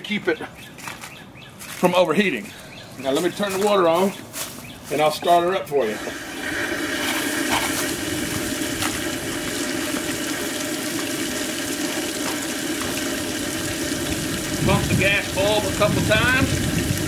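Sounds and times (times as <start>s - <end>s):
hose water running: 5.7s - 17.0s.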